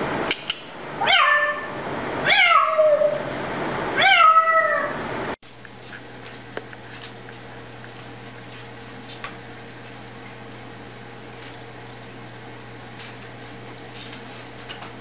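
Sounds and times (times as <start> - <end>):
parrot mimicking cat meow: 1.0 - 3.2.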